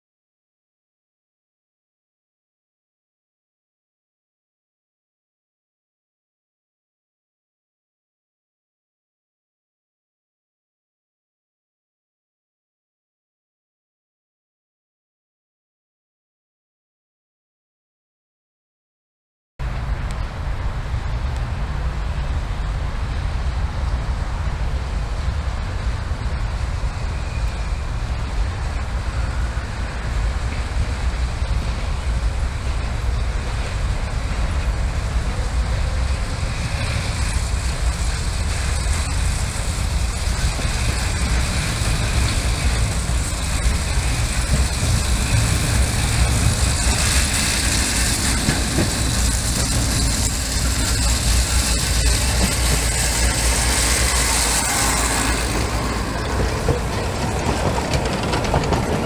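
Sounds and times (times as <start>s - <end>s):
low rumble: 19.6s - 59.0s
small train approaching on track: 19.6s - 59.0s.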